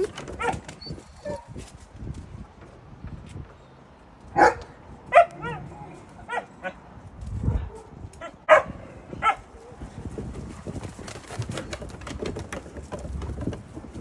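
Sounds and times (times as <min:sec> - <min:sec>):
dogs barking: 0:04.4 - 0:06.8, 0:07.5 - 0:09.5.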